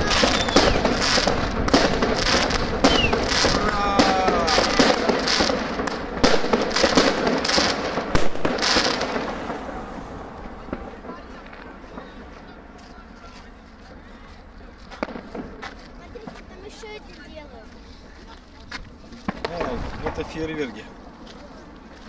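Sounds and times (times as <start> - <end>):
fireworks launching and bursting: 0.0 - 12.5, 19.2 - 21.0
crackling fireworks: 0.0 - 22.0.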